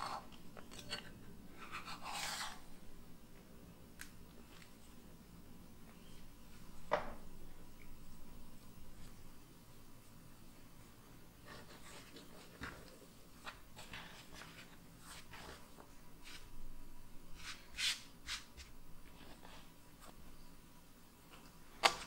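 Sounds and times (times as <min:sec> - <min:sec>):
hands brushing dough: 0:17.3 - 0:20.2.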